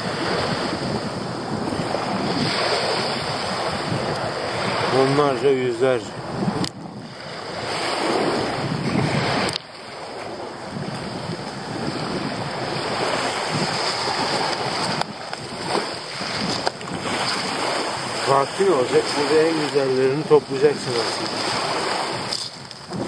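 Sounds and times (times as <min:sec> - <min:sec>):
waves washing over pebbles: 0:00.0 - 0:23.0.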